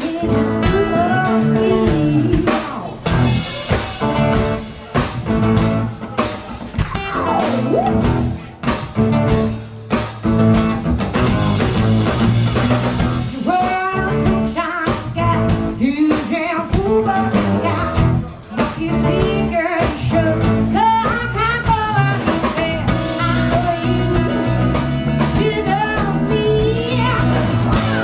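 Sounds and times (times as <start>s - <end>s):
person singing: 0.0s - 3.1s, 13.3s - 28.0s
bass: 0.0s - 28.0s
drums: 0.0s - 28.0s
strummed acoustic guitar: 3.0s - 14.6s.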